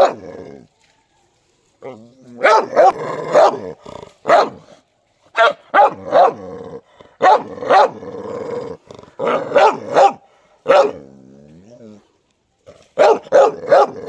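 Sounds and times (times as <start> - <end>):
dog barking: 0.0 - 0.2, 2.4 - 3.6, 4.2 - 4.7, 5.3 - 6.4, 7.2 - 8.0, 9.2 - 11.0, 13.0 - 14.0
dog growling: 6.1 - 10.0.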